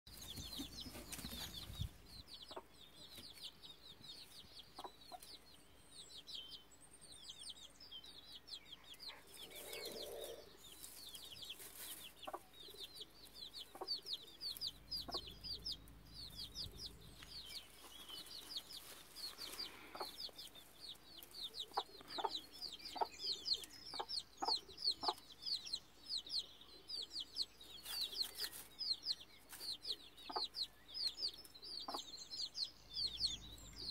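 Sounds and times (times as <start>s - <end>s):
chicks peeping: 0.1s - 33.9s
hen clucking: 9.1s - 10.5s, 11.5s - 25.3s, 30.2s - 30.7s.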